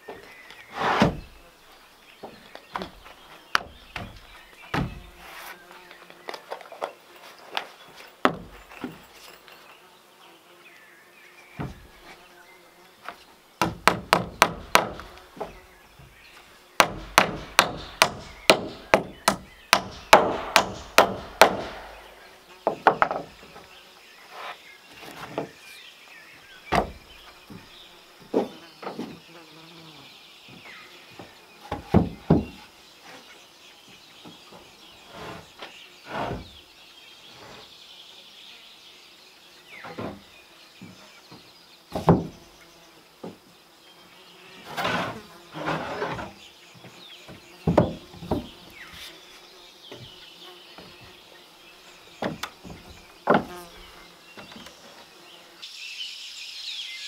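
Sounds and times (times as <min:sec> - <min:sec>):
hammer blows on wood: 0:16.8 - 0:23.3.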